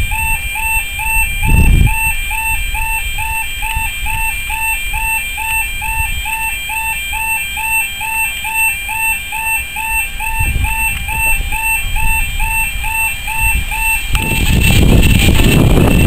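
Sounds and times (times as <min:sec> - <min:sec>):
electronic warbling tone: 0:00.0 - 0:16.0
low rumble: 0:10.4 - 0:16.0.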